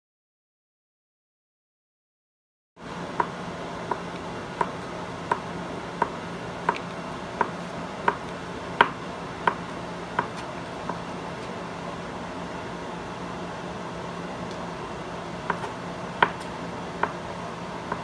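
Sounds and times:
steady low hum: 0:02.8 - 0:18.0
knife chopping on cutting board: 0:03.2 - 0:11.0, 0:15.5 - 0:17.2.

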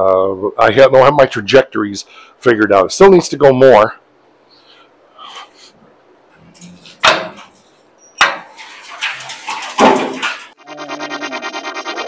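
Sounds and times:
rotisserie creaking and knocking: 0:06.4 - 0:10.6.

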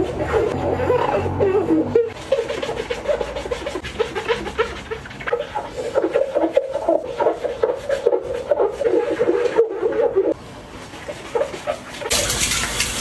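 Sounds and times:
glove squeaking on wet glass: 0:00.0 - 0:10.4
wet foamy rubbing: 0:00.0 - 0:13.0.

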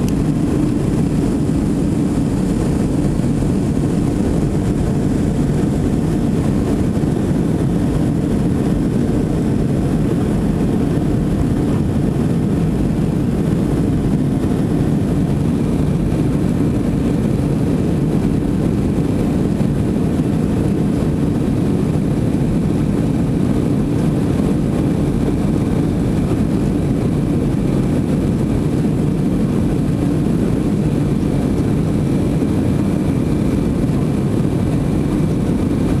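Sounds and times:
airliner cabin engine rumble: 0:00.0 - 0:36.0
faint steady whine: 0:00.0 - 0:36.0.

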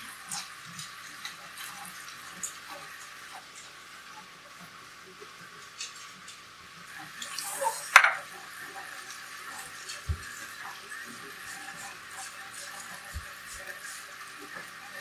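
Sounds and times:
metal bowl clank: 0:07.9 - 0:08.2.

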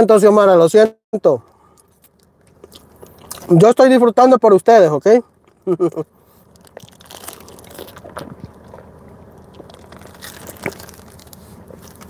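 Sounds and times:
chewing mouth sounds: 0:01.7 - 0:03.5, 0:05.3 - 0:12.0
plastic bag handling: 0:06.4 - 0:12.0.

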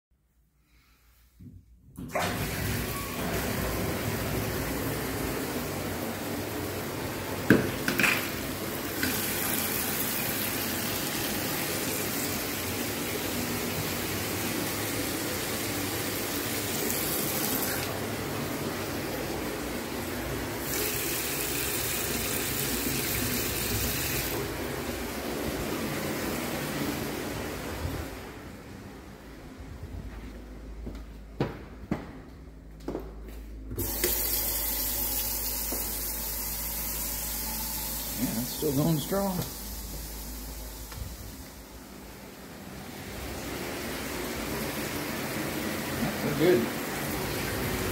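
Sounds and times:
tap water rushing: 0:07.3 - 0:18.0, 0:20.6 - 0:24.8, 0:33.8 - 0:41.7.

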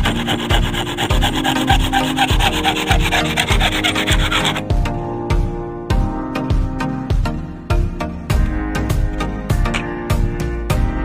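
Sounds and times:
hand saw sawing wood: 0:00.0 - 0:04.6.

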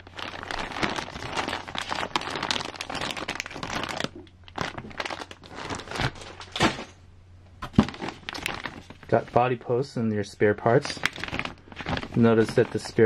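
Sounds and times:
plastic bags crinkling: 0:00.0 - 0:07.0, 0:07.6 - 0:09.5, 0:10.6 - 0:13.0.

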